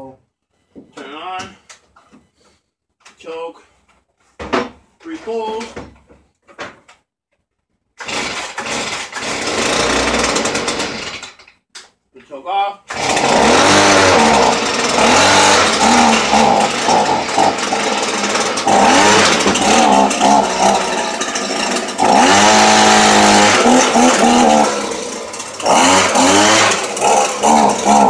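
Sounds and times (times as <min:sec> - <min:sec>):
leaf blower engine revving: 0:08.0 - 0:11.3, 0:12.9 - 0:28.0.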